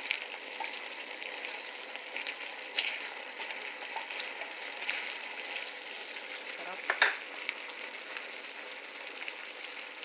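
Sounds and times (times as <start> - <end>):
wooden spoon stirring pan: 0.0 - 7.3
sauce bubbling and sizzling: 0.0 - 10.0.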